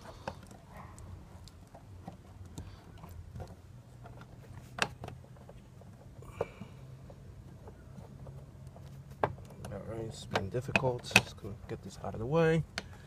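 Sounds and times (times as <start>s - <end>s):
clicks and taps on plastic fittings: 7.5s - 11.7s, 12.6s - 13.0s.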